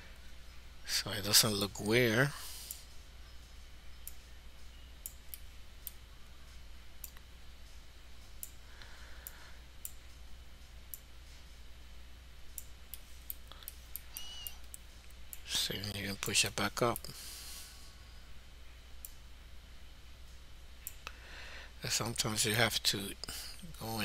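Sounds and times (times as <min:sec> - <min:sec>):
steady low hum: 0:00.0 - 0:24.0
computer mouse clicking: 0:07.0 - 0:07.3.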